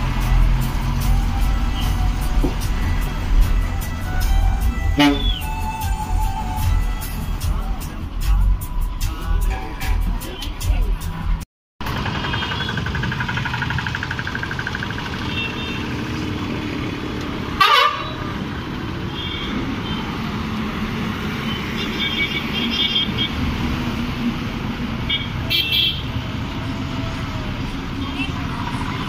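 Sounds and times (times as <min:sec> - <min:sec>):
bus engines running: 0:00.0 - 0:29.0
bus horn toots: 0:01.6 - 0:05.6, 0:17.6 - 0:18.3, 0:19.1 - 0:20.1, 0:21.5 - 0:23.4, 0:25.1 - 0:26.2.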